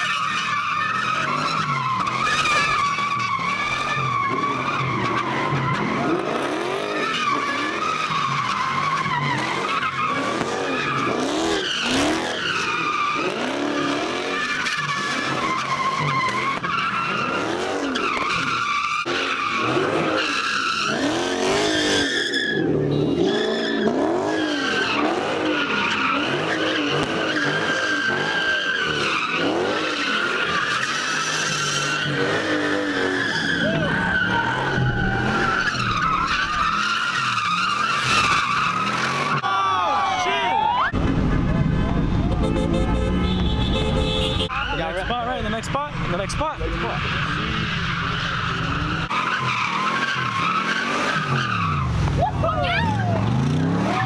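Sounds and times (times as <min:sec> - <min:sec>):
car engine revving: 0:00.0 - 0:39.4, 0:40.9 - 0:54.0
tyres squealing: 0:00.0 - 0:40.9, 0:44.4 - 0:53.1.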